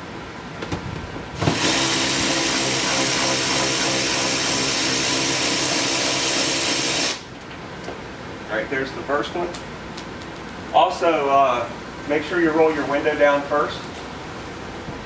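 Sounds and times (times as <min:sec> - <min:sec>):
cordless drill motor running: 0:01.4 - 0:07.2.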